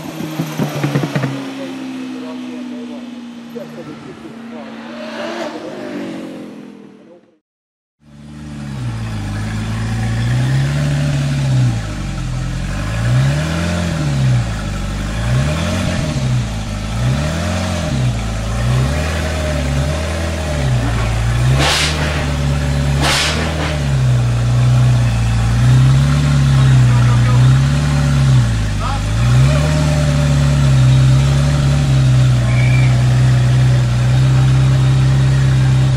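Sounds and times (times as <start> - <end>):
car engine idling: 0.0 - 4.7, 8.0 - 35.9
car engine accelerating: 0.0 - 7.4, 8.0 - 35.9
engine throttle blips: 0.0 - 7.4, 8.0 - 35.9
sharp exhaust cracks: 8.9 - 34.9.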